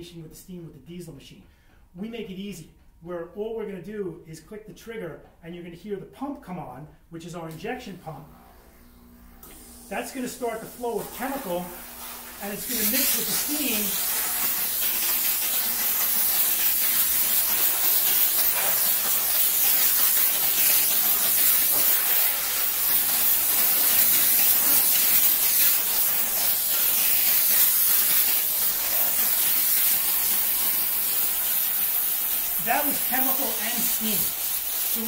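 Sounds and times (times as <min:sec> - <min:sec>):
steam cleaner hissing: 0:08.4 - 0:35.0.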